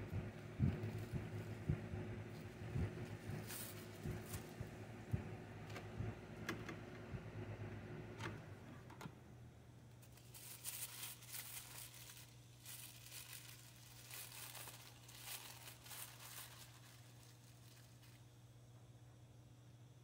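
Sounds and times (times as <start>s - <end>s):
faint low hum: 0.0s - 20.0s
plastic bags crinkling: 3.3s - 4.6s, 10.0s - 18.3s.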